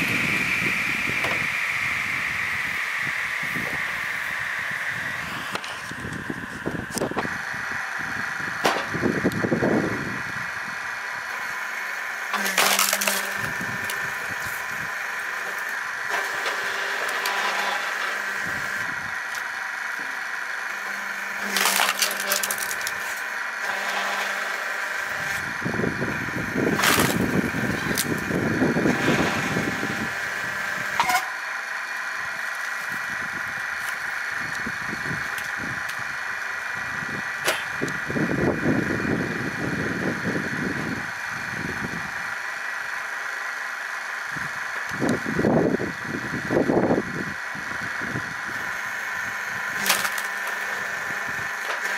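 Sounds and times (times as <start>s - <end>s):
firewood splitter motor running: 0.0s - 51.9s
wood cracking and splintering: 12.3s - 19.6s, 20.8s - 24.4s, 26.6s - 29.2s, 49.6s - 51.9s.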